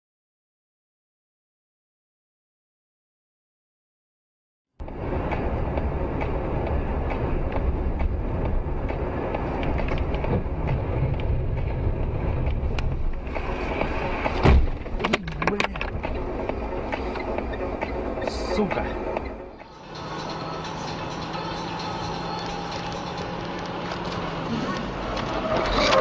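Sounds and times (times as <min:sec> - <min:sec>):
road and tyre rumble: 0:04.8 - 0:26.0
loud thump: 0:14.3 - 0:15.0.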